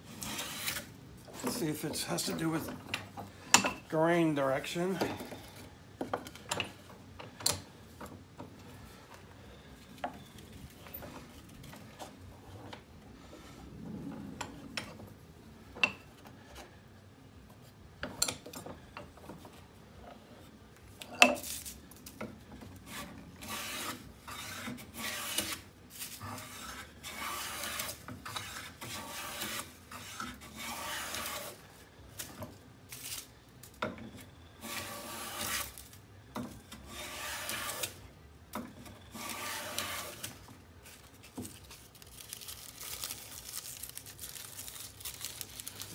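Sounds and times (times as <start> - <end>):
hand plane shaving wood: 0.1 - 2.7, 22.8 - 31.6, 34.6 - 35.8, 36.8 - 38.0, 39.1 - 40.4.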